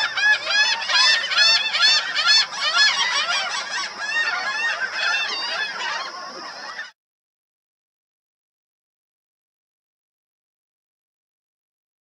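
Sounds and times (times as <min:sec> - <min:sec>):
birds honking calls: 0:00.0 - 0:07.0.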